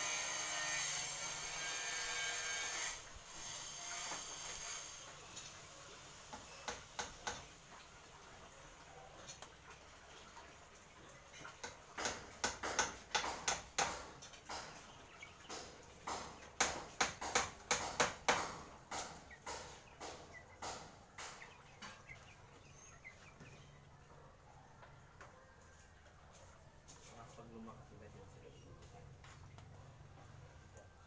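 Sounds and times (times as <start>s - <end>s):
hammer striking wood frame: 6.3s - 7.5s, 11.6s - 22.0s.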